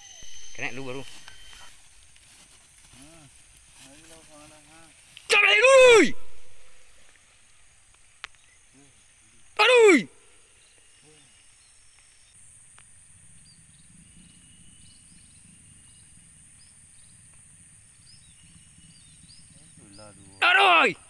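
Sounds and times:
faint short chirps: 0.0 - 1.8
steady high hiss: 0.0 - 18.8
soft low rustle: 1.0 - 5.3
man exclaiming: 5.3 - 6.5, 9.6 - 10.2, 20.3 - 21.0.

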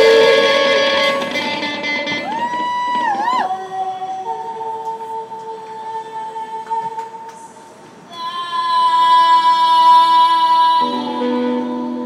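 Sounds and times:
woman singing high note: 0.0 - 1.2, 8.1 - 12.0
live rock band: 0.0 - 3.4.

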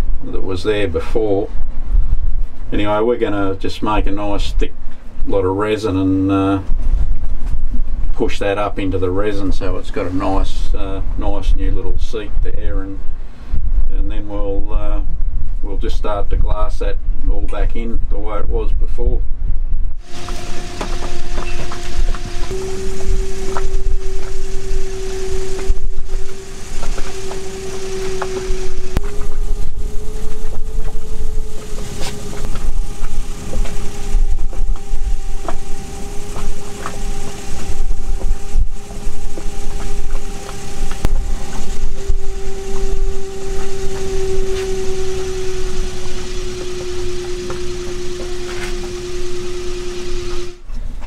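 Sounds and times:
low rumble: 0.0 - 51.0
motor droning hum: 19.9 - 51.0.

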